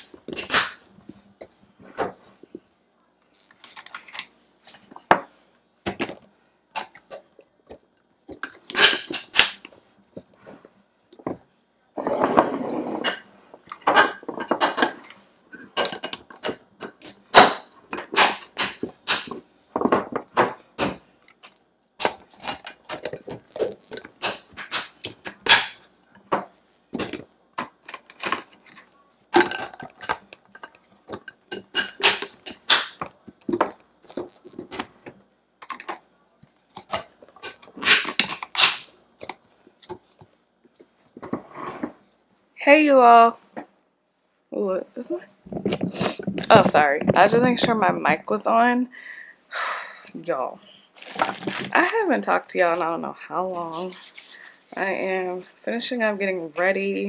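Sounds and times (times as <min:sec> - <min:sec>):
glass containers clacking: 0:12.0 - 0:20.6, 0:29.4 - 0:34.4.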